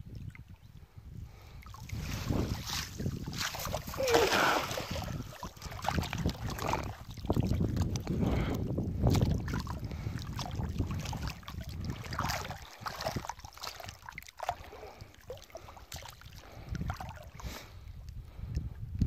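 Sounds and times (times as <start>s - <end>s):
wind rumble on microphone: 0.0s - 19.0s
water splashing: 1.6s - 8.3s, 9.0s - 17.6s.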